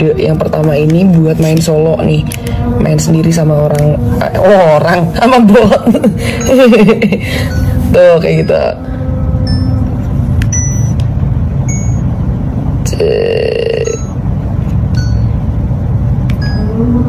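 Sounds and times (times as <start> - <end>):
steady low rumble: 0.0 - 17.0
longer buzzing tone: 7.4 - 11.0, 12.9 - 14.2
short electronic beeps: 9.4 - 9.9, 10.5 - 11.0, 11.7 - 12.1, 12.9 - 14.2, 14.9 - 15.4, 16.4 - 16.8.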